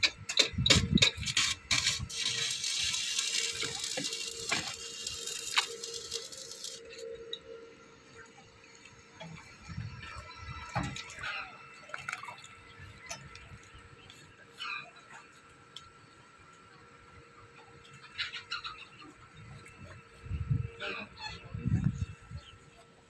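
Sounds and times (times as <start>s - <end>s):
steel rebar clinking: 0.0s - 7.5s
crackling hiss: 1.2s - 7.7s.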